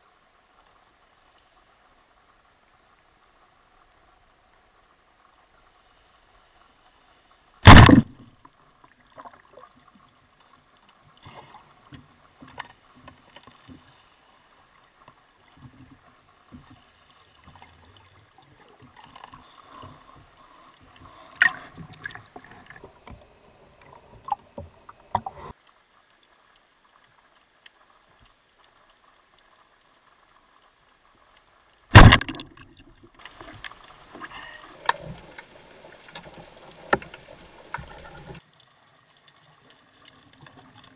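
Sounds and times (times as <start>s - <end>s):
water noise: 0.0s - 40.9s
speargun firing crack: 7.6s - 8.2s, 31.9s - 32.5s
faint clicks underwater: 23.8s - 40.9s.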